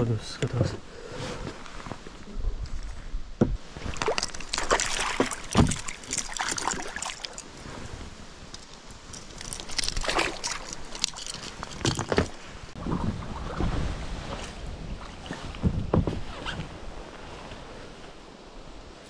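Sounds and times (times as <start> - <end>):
fish splashing in water: 3.8 - 7.5, 9.4 - 11.4.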